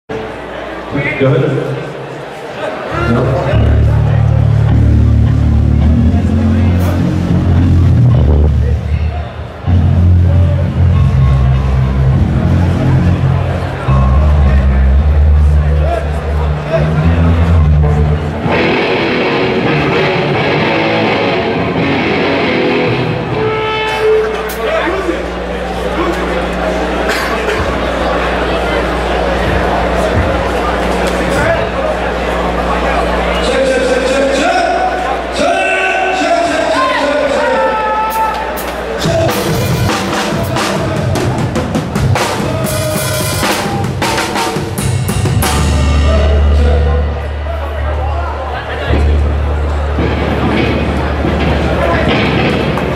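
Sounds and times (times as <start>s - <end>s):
electric guitars: 2.9s - 33.4s
bass guitar: 2.9s - 33.5s, 38.4s - 52.9s
hardcore band playing live: 2.9s - 35.5s, 36.1s - 52.9s.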